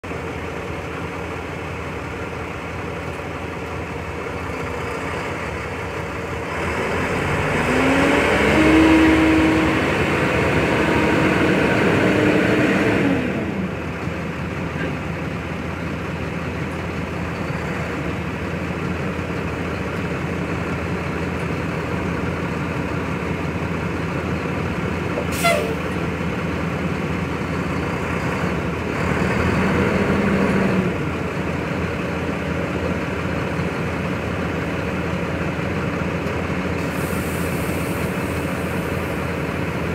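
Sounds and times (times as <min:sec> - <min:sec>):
truck diesel engine: 0:00.0 - 0:39.9
air hiss: 0:36.8 - 0:39.3.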